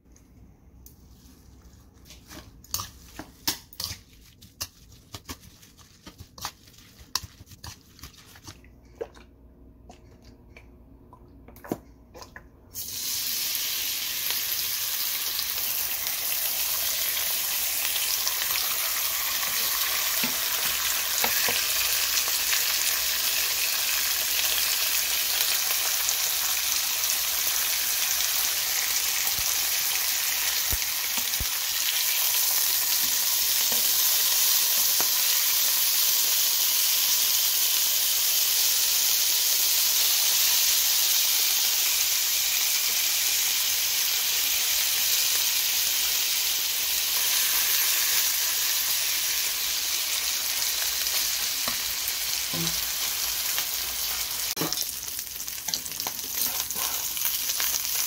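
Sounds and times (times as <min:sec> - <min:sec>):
meat sizzling in a pan: 0:12.8 - 0:58.0.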